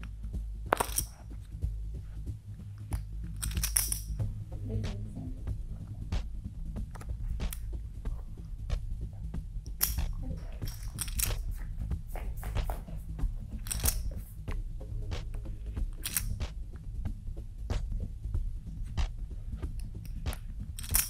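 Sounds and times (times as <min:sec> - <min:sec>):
low music bed: 0:00.0 - 0:21.0
playing cards handled: 0:00.7 - 0:01.5, 0:02.8 - 0:04.3, 0:09.7 - 0:14.6, 0:15.9 - 0:16.5, 0:19.7 - 0:21.0
poker chips clattering: 0:00.8 - 0:01.2, 0:03.4 - 0:04.1, 0:09.8 - 0:11.5, 0:13.6 - 0:14.2, 0:16.0 - 0:16.3, 0:20.8 - 0:21.0.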